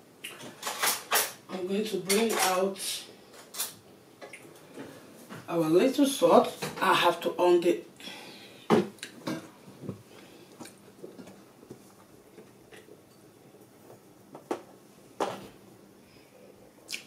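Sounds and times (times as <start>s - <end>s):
kitchen items knocking and clicking: 0.3s - 2.6s.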